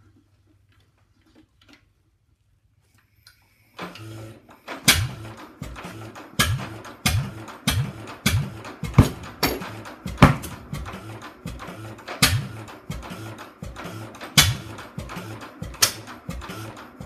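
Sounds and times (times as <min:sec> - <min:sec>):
gas engine exhaust bangs: 0:04.9 - 0:17.0.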